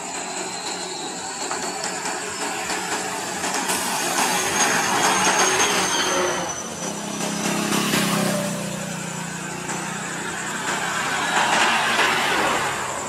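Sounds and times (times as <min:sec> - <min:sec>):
diesel bus driving past: 0:03.0 - 0:13.0.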